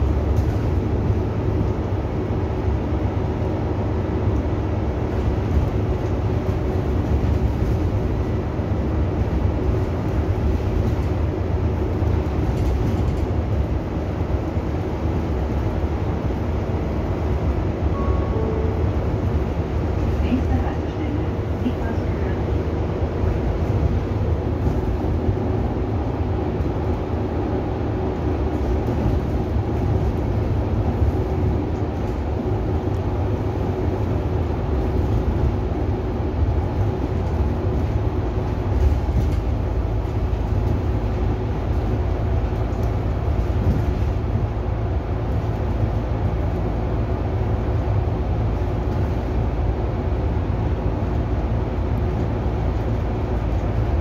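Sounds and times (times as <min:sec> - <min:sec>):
bus engine and road rumble: 0:00.0 - 0:54.0
faint hum: 0:17.9 - 0:22.4.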